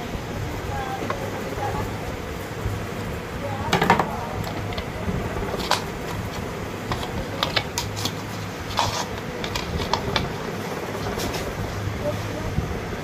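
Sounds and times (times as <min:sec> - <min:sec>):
steady low hum: 0:00.0 - 0:13.0
light clicks and taps of fan parts: 0:00.8 - 0:01.6, 0:03.0 - 0:11.6.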